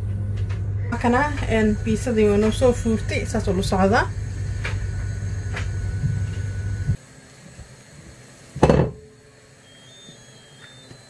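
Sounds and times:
low hum: 0.0s - 7.0s
dull thump on worktop: 8.6s - 9.0s.

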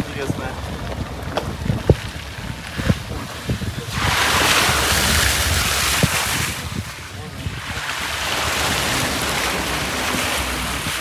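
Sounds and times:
wind buffeting microphone: 0.0s - 11.0s
sea wave washing in: 3.8s - 11.0s.

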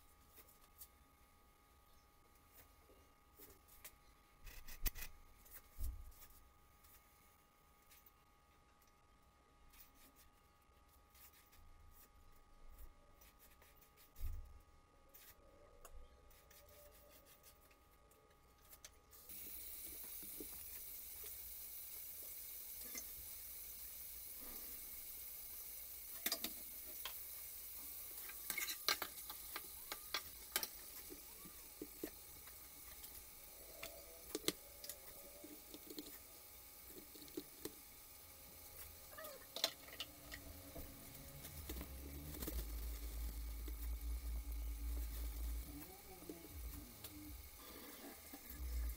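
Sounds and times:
food sizzling in hot oil: 19.2s - 48.9s
utensil scraping a pot: 28.1s - 31.3s.

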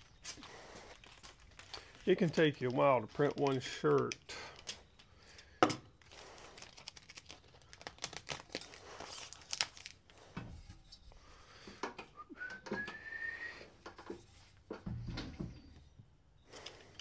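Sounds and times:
rustling and crinkling: 0.0s - 12.2s, 13.6s - 17.0s
rising whistle: 12.2s - 13.8s.

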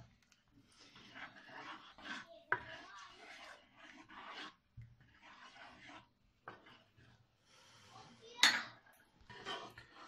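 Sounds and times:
wooden spoon scraping in a pan: 0.0s - 10.0s
kitchenware clink: 8.4s - 9.1s.

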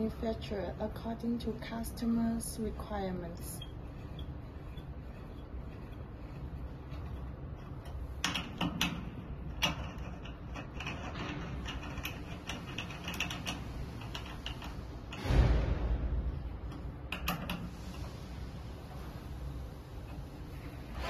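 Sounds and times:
hex key clicks and scrapes: 3.2s - 15.2s
loud knock: 15.2s - 16.4s.

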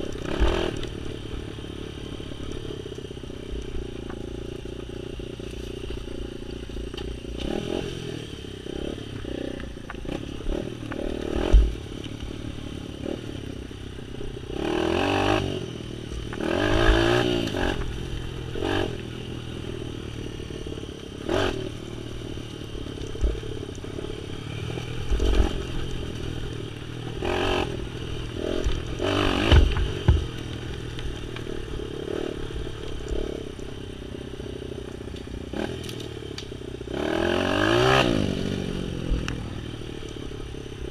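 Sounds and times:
off-road vehicle engine revving: 0.0s - 2.8s, 3.4s - 13.6s, 14.2s - 40.9s
scraping and clattering on rough ground: 28.3s - 33.4s.

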